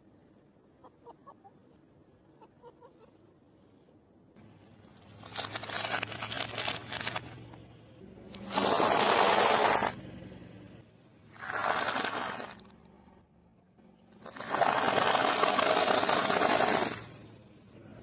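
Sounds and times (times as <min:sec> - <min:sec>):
tyre crunching food: 0:04.9 - 0:07.6, 0:11.4 - 0:12.8.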